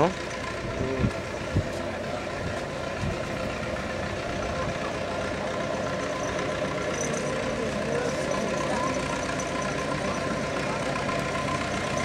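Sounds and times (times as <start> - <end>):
vehicle engine droning: 0.0 - 12.0.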